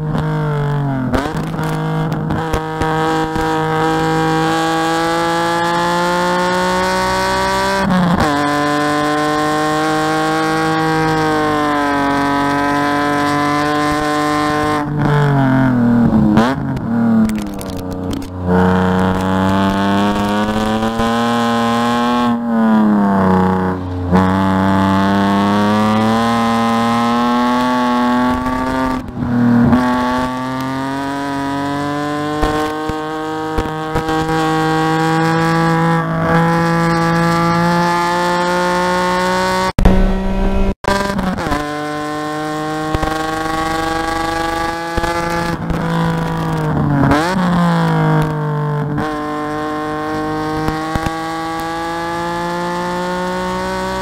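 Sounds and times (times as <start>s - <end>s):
car engine under load: 0.0s - 54.0s.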